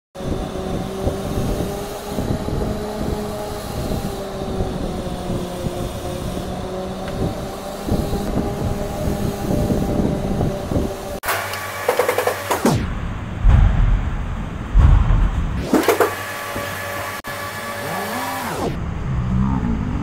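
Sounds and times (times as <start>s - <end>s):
machine hum: 0.2s - 19.1s
low rumble: 12.6s - 17.2s.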